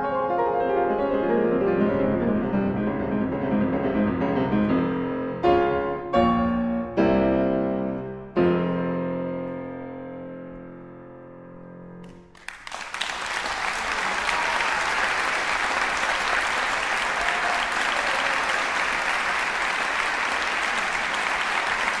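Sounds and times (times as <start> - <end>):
audience applause: 12.3 - 22.0.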